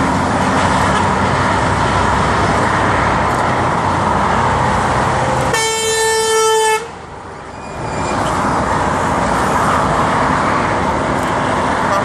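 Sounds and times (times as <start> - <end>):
motorway traffic noise: 0.0 - 12.0
truck horn blast: 5.5 - 7.0.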